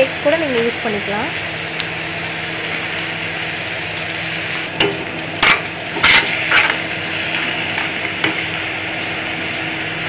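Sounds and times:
frying sizzle: 0.0 - 10.0
ladle scraping iron pan: 5.4 - 6.9.

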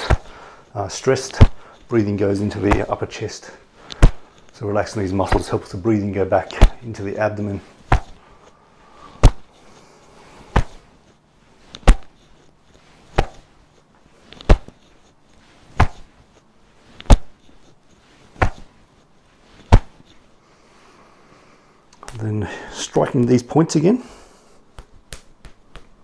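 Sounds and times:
hands slapping shoulders: 0.0 - 0.4, 1.1 - 1.9, 2.5 - 3.0, 3.8 - 4.6, 5.2 - 5.6, 6.4 - 6.9, 7.8 - 8.2, 9.0 - 9.8, 10.4 - 10.9, 11.8 - 12.2, 13.1 - 13.6, 14.3 - 14.8, 15.7 - 16.2, 17.0 - 17.4, 18.3 - 18.8, 19.6 - 20.1, 24.7 - 26.0.

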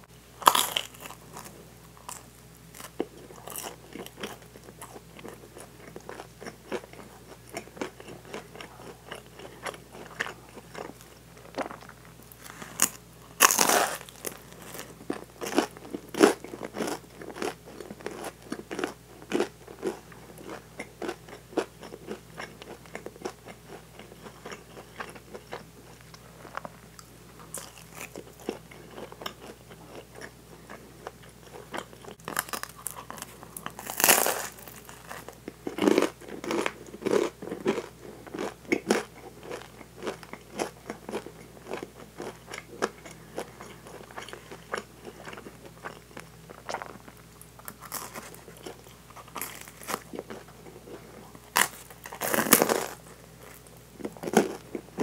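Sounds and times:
crunchy bites into bread crust: 0.4 - 1.5, 12.4 - 21.2, 32.2 - 40.7, 51.5 - 54.8.

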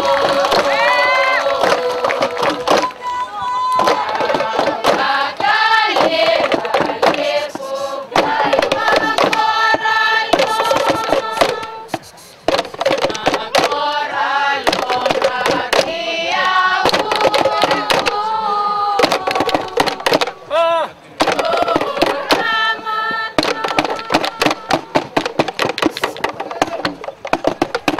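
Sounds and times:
women singing together: 0.0 - 12.0, 13.0 - 20.6, 21.2 - 25.2
sharp percussive clicks: 16.8 - 18.2, 23.4 - 27.9.

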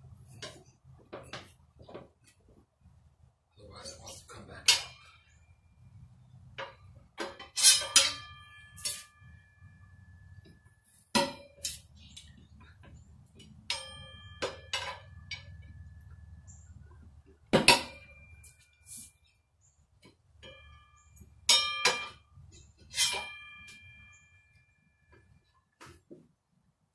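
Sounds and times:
tire spoons clinking on wheel rim: 6.6 - 9.5, 11.2 - 16.6, 20.4 - 24.5.

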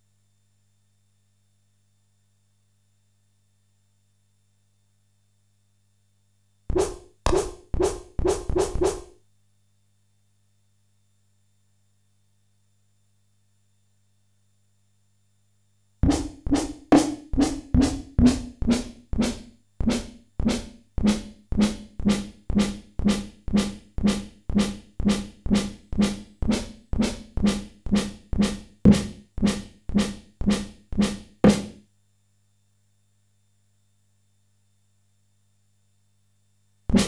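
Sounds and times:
electronic snare drum hits: 6.7 - 9.2, 16.0 - 31.8.

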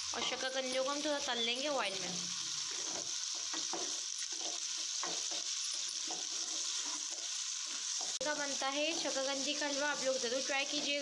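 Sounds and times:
potatoes sizzling in hot oil: 0.0 - 11.0
spatula scraping a pan: 2.3 - 8.2, 8.8 - 9.2.

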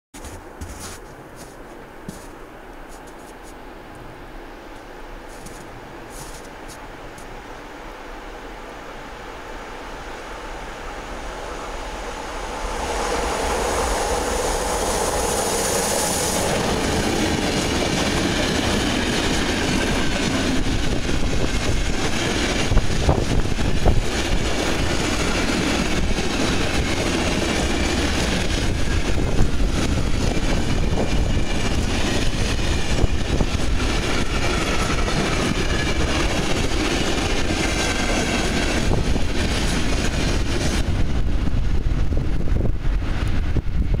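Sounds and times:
electric locomotive whine: 3.7 - 44.0
train wheels rumbling and clattering: 11.8 - 44.0.

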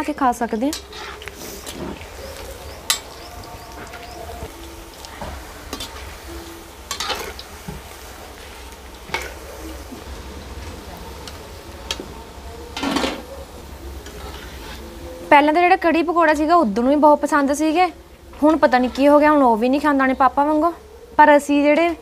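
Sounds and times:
metal spoon scraping a pan: 0.6 - 4.1, 5.7 - 7.5, 14.0 - 15.0.

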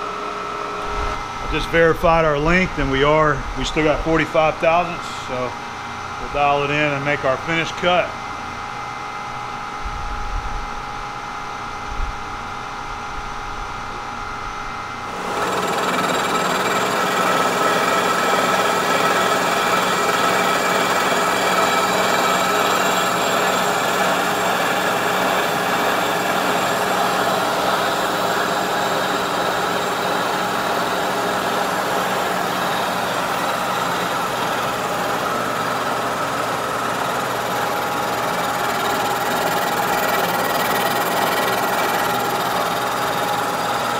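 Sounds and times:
milling machine cutting metal: 15.1 - 43.9.

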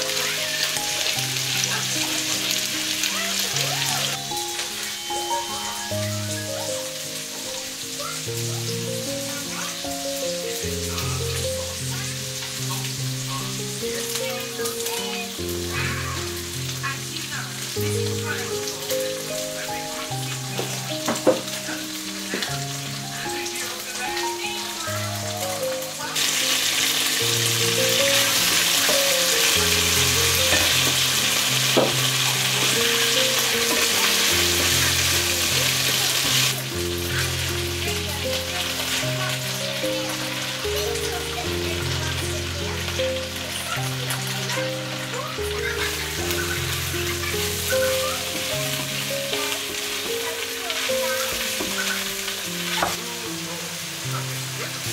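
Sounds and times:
food sizzling in a pan: 0.0 - 54.9
soft background music: 0.0 - 54.9.

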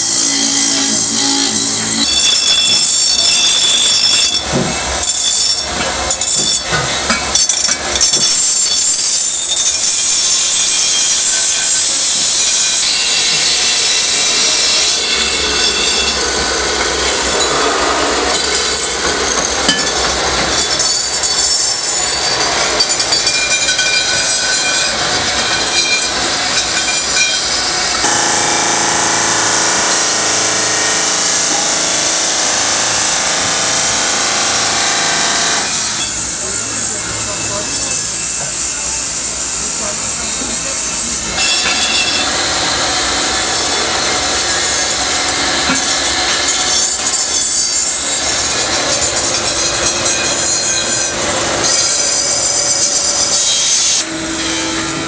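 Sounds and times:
polishing wheel grinding metal: 0.0 - 4.1, 27.4 - 39.2
drill boring into metal: 26.6 - 54.9.

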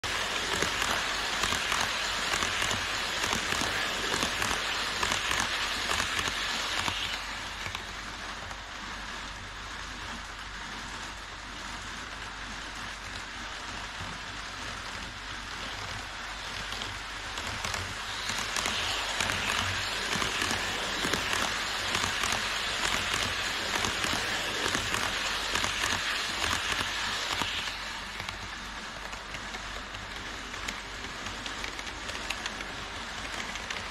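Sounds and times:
model train rattling and whirring: 0.0 - 33.9.

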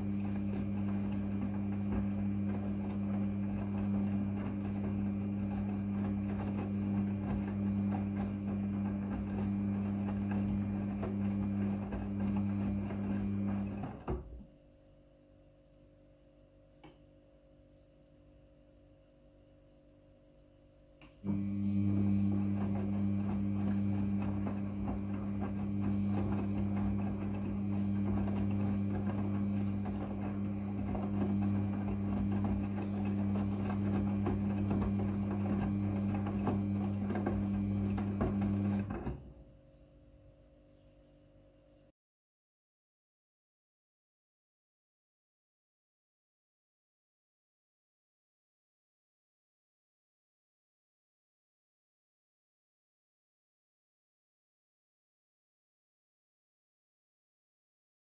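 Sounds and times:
washing machine drum tumbling: 0.0 - 14.5, 21.3 - 39.5
faint click: 16.8 - 17.0.

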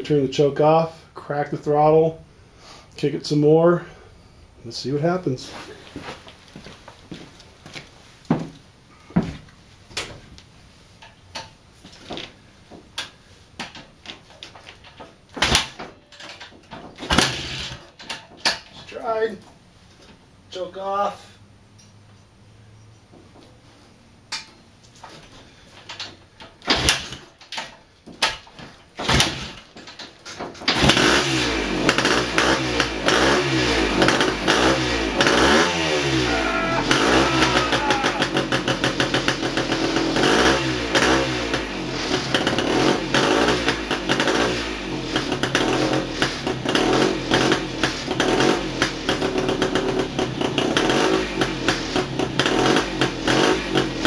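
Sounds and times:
motorcycle kick-start pops: 13.0 - 18.8, 25.8 - 33.4
motorcycle engine revving: 17.1 - 17.9, 30.7 - 54.0.

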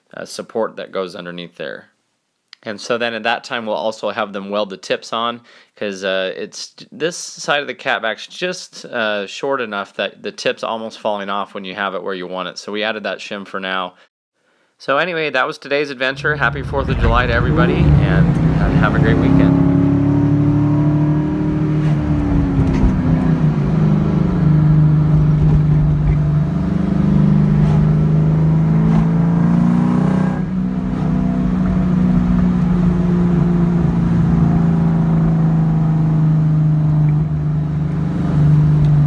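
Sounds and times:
car engine running from inside cabin: 16.2 - 39.0.

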